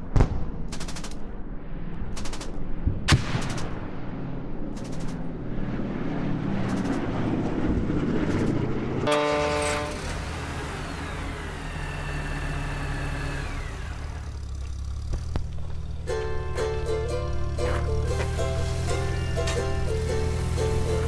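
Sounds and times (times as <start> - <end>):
rumbling vehicle engine: 0.1 - 21.0
low engine drone: 1.3 - 21.0
horn blast: 9.0 - 10.2.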